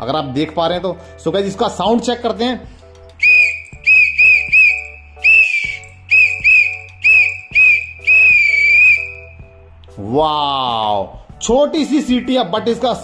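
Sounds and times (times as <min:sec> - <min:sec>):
loud pea whistle blasts: 0:03.2 - 0:09.4.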